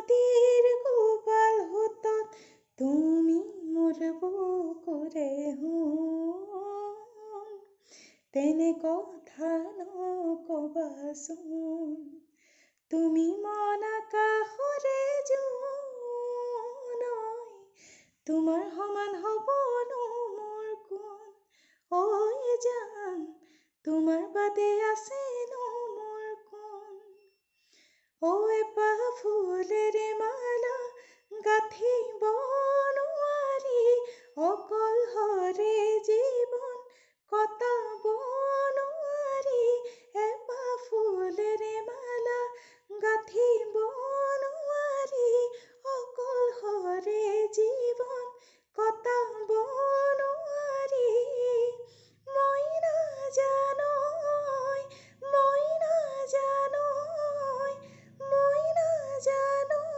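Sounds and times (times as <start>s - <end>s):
woman singing unaccompanied: 0.0s - 7.7s, 8.4s - 12.1s, 12.9s - 27.2s, 28.2s - 59.9s
breaths: 2.3s - 2.8s, 7.7s - 8.3s, 12.3s - 12.9s, 17.7s - 18.2s, 21.4s - 21.9s, 23.4s - 23.8s, 27.5s - 28.2s, 30.9s - 31.3s, 34.0s - 34.4s, 36.8s - 37.2s, 39.8s - 40.2s, 42.5s - 42.9s, 45.5s - 45.8s, 48.4s - 48.7s, 51.8s - 52.3s, 54.9s - 55.2s, 57.8s - 58.2s.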